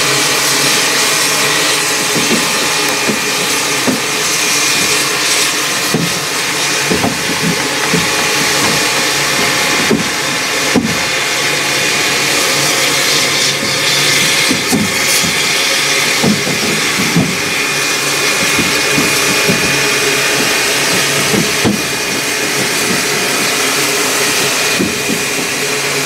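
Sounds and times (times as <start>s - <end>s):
steam hissing from safety valve: 0.0s - 26.0s
short knocks: 5.8s - 6.3s, 6.9s - 11.1s.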